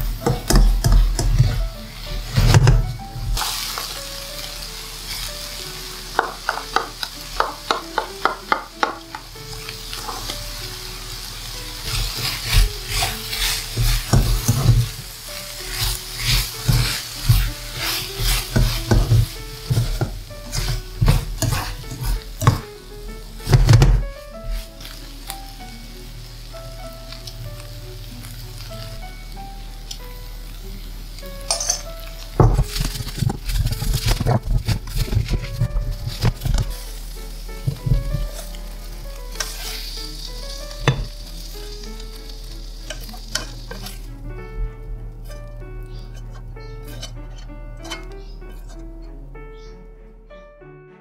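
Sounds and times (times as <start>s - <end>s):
spatula scraping a pan: 0.0s - 3.9s, 11.8s - 22.7s, 23.4s - 25.0s, 32.5s - 37.0s, 37.6s - 44.1s, 45.2s - 49.7s
food sizzling in a pan: 0.0s - 44.3s, 45.1s - 48.8s
spatula knocking against pan: 0.2s - 1.4s, 6.2s - 9.3s.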